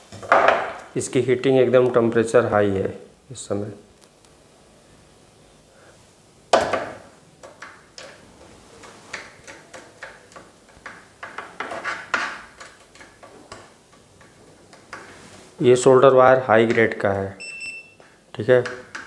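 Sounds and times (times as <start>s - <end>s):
solder clicking and crackling: 3.9s - 4.4s, 6.5s - 15.2s.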